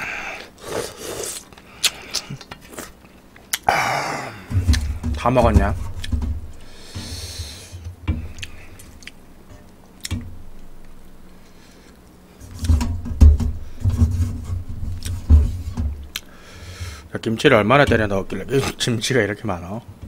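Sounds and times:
slurping and chewing noodles: 0:00.4 - 0:03.7
deep muffled thumps: 0:04.4 - 0:08.4, 0:12.6 - 0:16.1.

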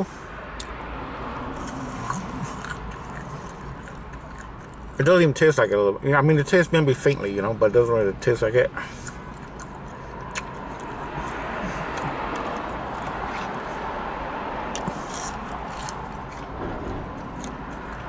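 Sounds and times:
chewing crispy food: 0:01.6 - 0:04.9, 0:14.7 - 0:16.5.

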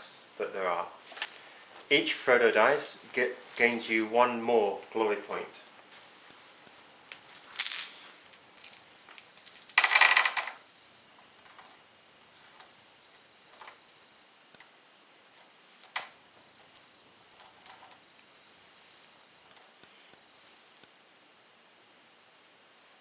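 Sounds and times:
dice clattering onto mat: 0:07.1 - 0:10.6
dice clicks: 0:07.1 - 0:10.6.

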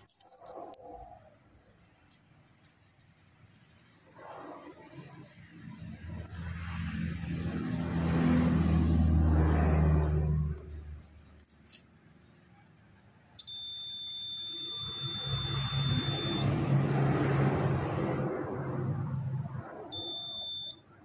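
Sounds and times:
multimeter high beep: 0:13.4 - 0:16.5, 0:19.9 - 0:20.8.

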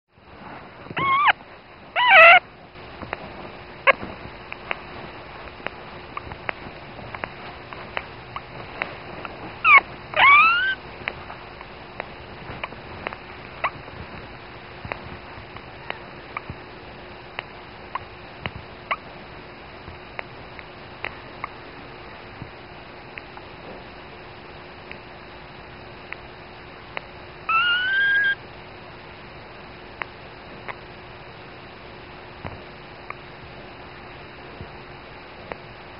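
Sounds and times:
puppy squeaking and crying: 0:01.0 - 0:01.4, 0:02.0 - 0:02.4, 0:09.6 - 0:10.8, 0:27.5 - 0:28.4.

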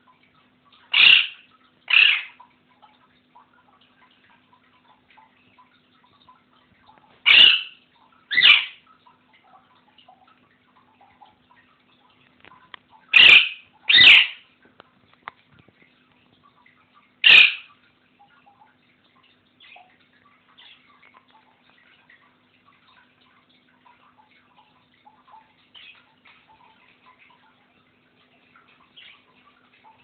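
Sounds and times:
parrot squawking: 0:00.9 - 0:02.4, 0:07.2 - 0:08.8, 0:13.1 - 0:14.4, 0:17.2 - 0:17.7.

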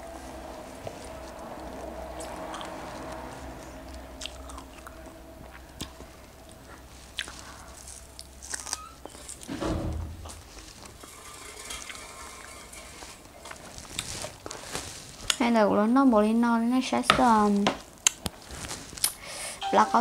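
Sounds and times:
person chewing strawberries: 0:00.1 - 0:09.5.

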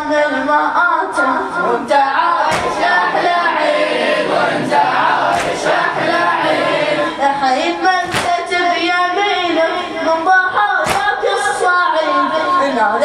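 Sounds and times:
boy chanting into a microphone: 0:00.0 - 0:13.0
sharp slaps: 0:02.5 - 0:03.1, 0:05.3 - 0:05.8, 0:08.0 - 0:08.6, 0:10.8 - 0:11.4.

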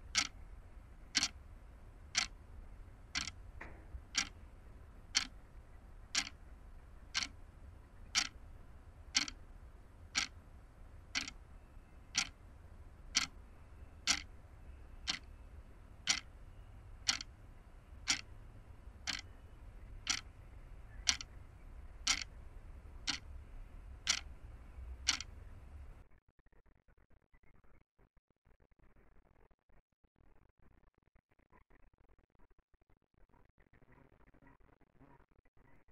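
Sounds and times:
clock ticking: 0:00.0 - 0:00.4, 0:01.1 - 0:01.4, 0:02.0 - 0:02.4, 0:03.1 - 0:04.4, 0:05.1 - 0:05.4, 0:06.1 - 0:06.4, 0:07.1 - 0:07.4, 0:08.0 - 0:08.4, 0:09.1 - 0:09.4, 0:10.1 - 0:10.4, 0:11.1 - 0:11.4, 0:12.1 - 0:12.4, 0:13.1 - 0:13.4, 0:14.0 - 0:14.3, 0:15.0 - 0:15.3, 0:16.0 - 0:16.3, 0:17.0 - 0:17.4, 0:18.0 - 0:18.4, 0:19.0 - 0:19.4, 0:20.0 - 0:20.3, 0:21.0 - 0:21.3, 0:22.0 - 0:22.3, 0:23.0 - 0:23.3, 0:24.0 - 0:24.4, 0:25.0 - 0:25.4
low steady rumble: 0:00.0 - 0:26.1.

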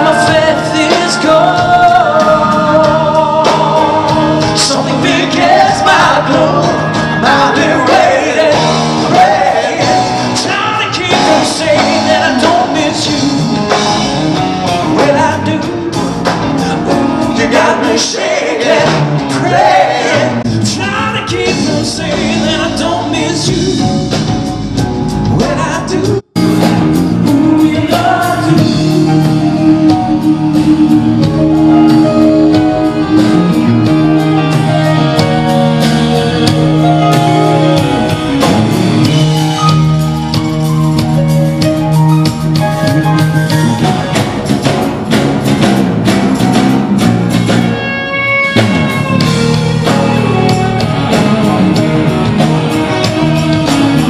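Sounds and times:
person singing: 0:00.0 - 0:13.8, 0:14.8 - 0:24.2, 0:25.4 - 0:41.6
bass guitar: 0:00.0 - 0:54.0
drums: 0:00.0 - 0:54.0
electric guitars: 0:00.0 - 0:54.0
keyboards: 0:00.0 - 0:54.0.

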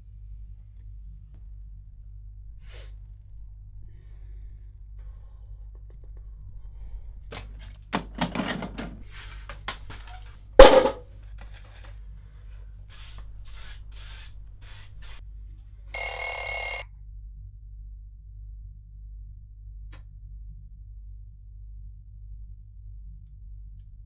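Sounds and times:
alarm clock ringing: 0:16.0 - 0:16.8.

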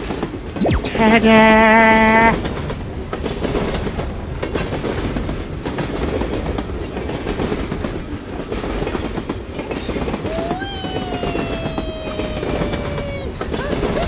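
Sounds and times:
train whistle: 0:00.9 - 0:02.4
train wheels clattering on track: 0:02.4 - 0:14.0.

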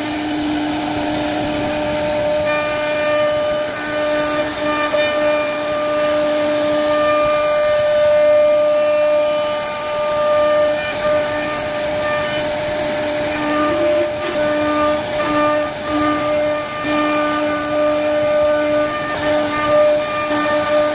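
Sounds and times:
lower machine tone: 0:00.0 - 0:20.9
router spindle whine: 0:00.0 - 0:20.9.

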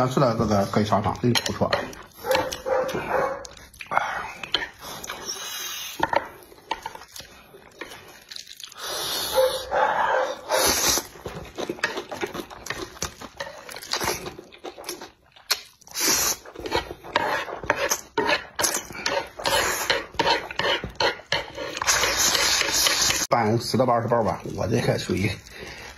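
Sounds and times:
wet chewing and lip-smacking: 0:01.8 - 0:09.5, 0:10.4 - 0:23.2
man slurping noodles: 0:10.4 - 0:11.2, 0:15.8 - 0:20.6, 0:21.6 - 0:23.2.

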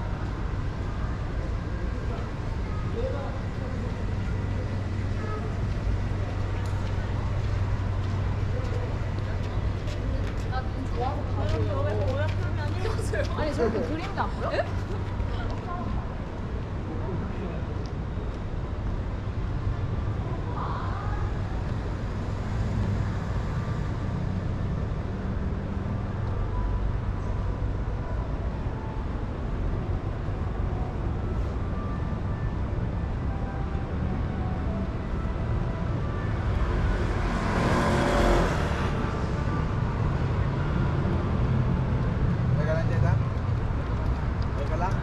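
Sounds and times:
passing cars rumbling: 0:00.0 - 0:45.0
car passing: 0:34.4 - 0:45.0.

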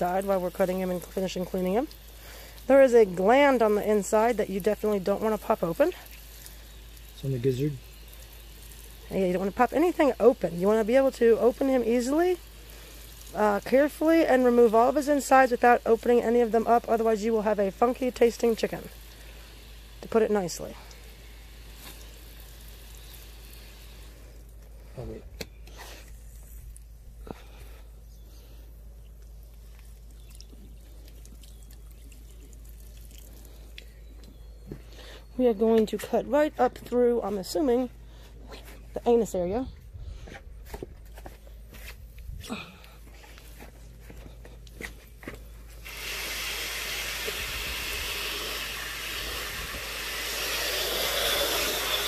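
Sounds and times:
hose nozzle spraying water: 0:00.0 - 0:24.8, 0:45.7 - 0:52.0
wet handling of chicken: 0:28.4 - 0:34.9.

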